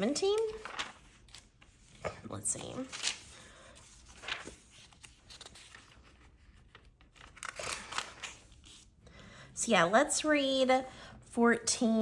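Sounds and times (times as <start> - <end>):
pages being turned: 0.3 - 8.9.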